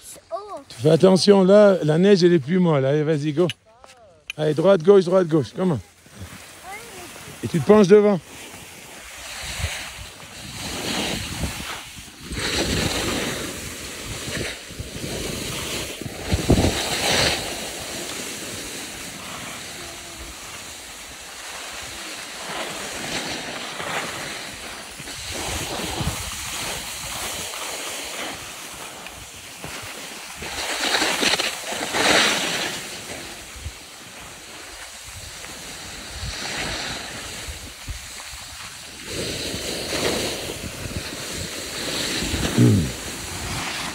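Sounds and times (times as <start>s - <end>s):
skis scraping over snow: 0.0s - 43.9s
wind rushing over microphone: 9.0s - 19.0s, 24.5s - 27.5s.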